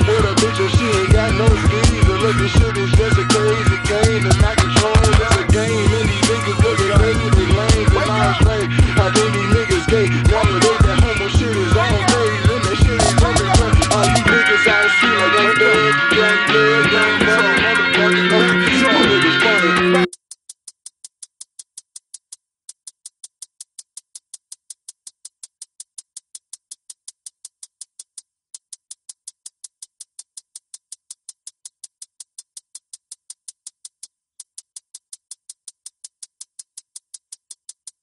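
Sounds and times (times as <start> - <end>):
music track: 0.0 - 20.1
drum-machine hi-hat ticking: 0.0 - 38.0.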